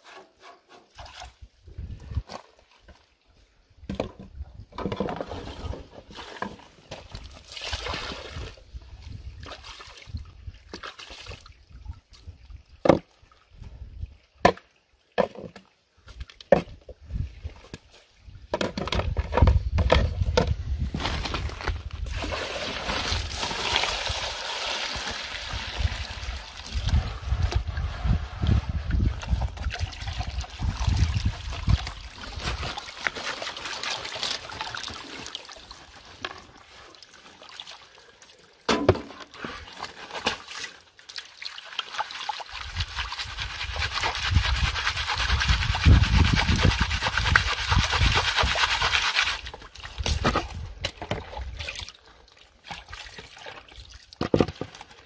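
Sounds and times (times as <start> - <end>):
muddy water pouring through sieve: 7.3 - 8.6, 21.0 - 38.1, 39.3 - 50.1.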